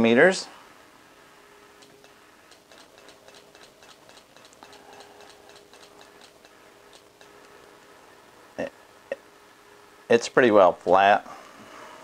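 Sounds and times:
relay clicking rapidly: 0:01.8 - 0:07.4.

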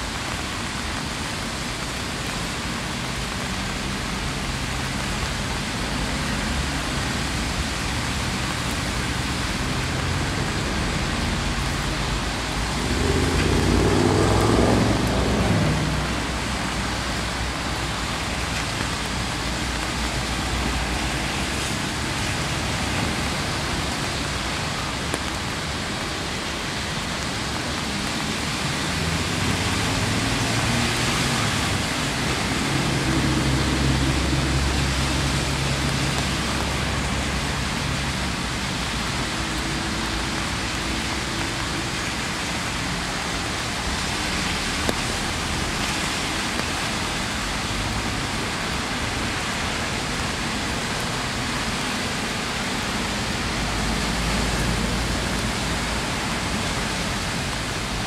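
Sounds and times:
steady rain hiss: 0:00.0 - 0:58.0
vehicle engine hum: 0:09.3 - 0:21.3.

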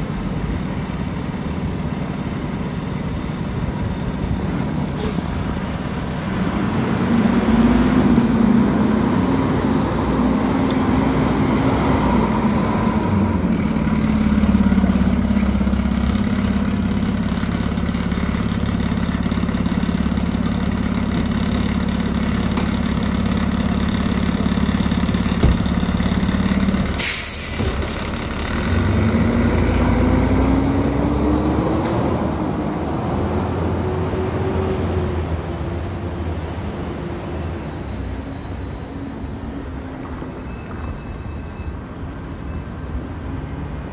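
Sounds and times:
air brakes hissing: 0:04.9 - 0:05.4, 0:27.0 - 0:28.2
truck engine revving: 0:06.2 - 0:35.2
diesel engine idling: 0:11.2 - 0:31.3.

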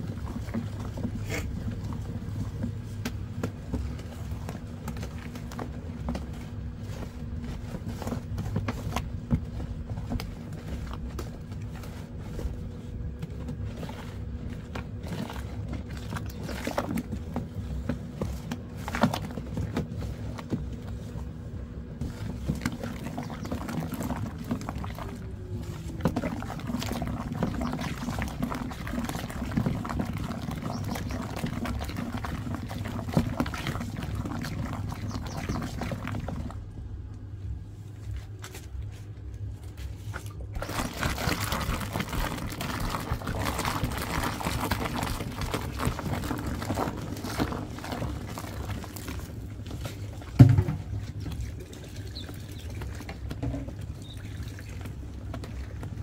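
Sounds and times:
stick swishing thick liquid soap: 0:22.0 - 0:36.6, 0:39.7 - 0:50.3
stick knocking on plastic basin: 0:50.3 - 0:50.9.

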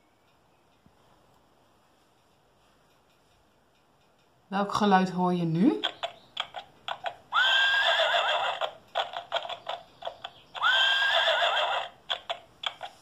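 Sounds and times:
clip-clopping hooves: 0:05.8 - 0:13.0
horse whinnying from small speaker: 0:07.3 - 0:08.8, 0:10.6 - 0:12.0.

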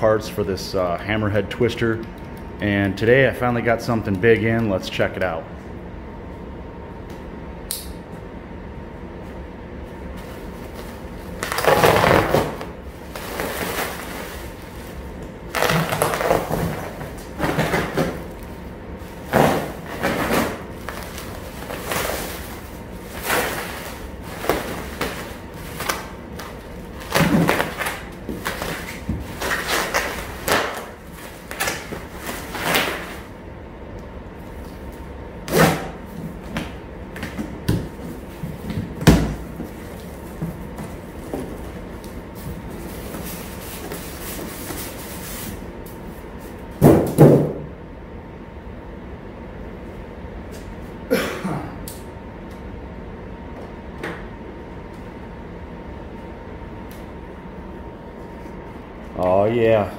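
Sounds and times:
bubble wrap crinkling: 0:10.4 - 0:18.4, 0:19.0 - 0:33.3
plastic wrap tearing: 0:11.3 - 0:18.2, 0:19.3 - 0:33.3.

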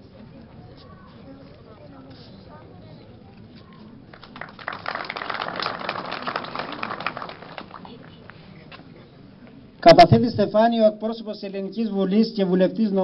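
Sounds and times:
crowd applauding: 0:04.1 - 0:08.4.

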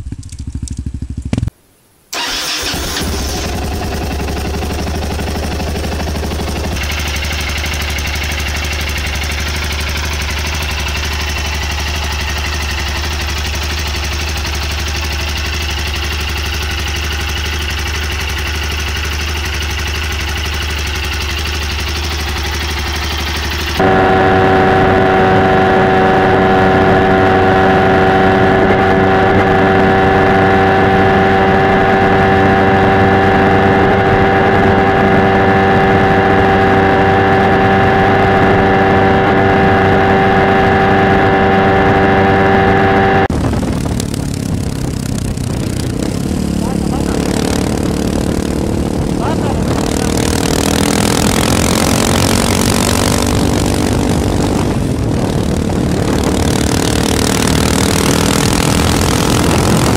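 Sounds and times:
motorcycle engine idling: 0:00.0 - 0:01.5, 0:02.2 - 0:29.0, 0:43.3 - 0:59.9
motorcycle engine cruising: 0:00.0 - 0:01.6, 0:02.2 - 0:59.9.

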